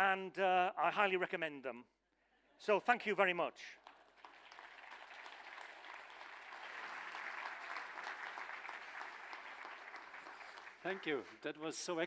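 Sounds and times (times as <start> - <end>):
audience applauding: 3.8 - 11.4.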